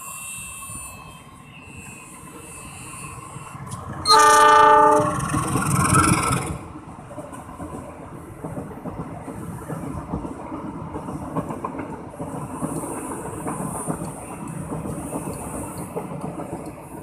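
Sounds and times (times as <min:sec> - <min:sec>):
train rumbling past: 0:00.0 - 0:17.0
locomotive horn: 0:04.0 - 0:05.3.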